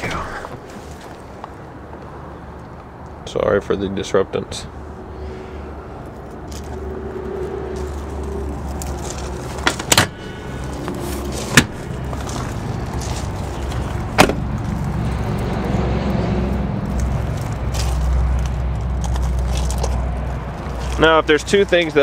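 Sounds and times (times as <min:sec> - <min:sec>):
car seat and door clunks: 0:11.5 - 0:11.8, 0:14.2 - 0:14.4.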